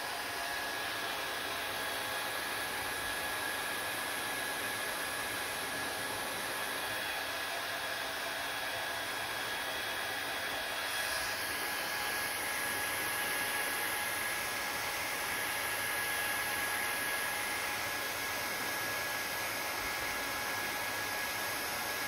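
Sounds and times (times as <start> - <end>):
hair dryer running: 0.0 - 22.0.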